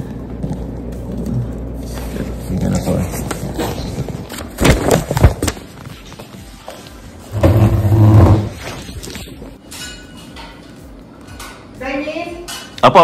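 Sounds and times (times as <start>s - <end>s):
chair dragged across floor: 7.3s - 9.1s.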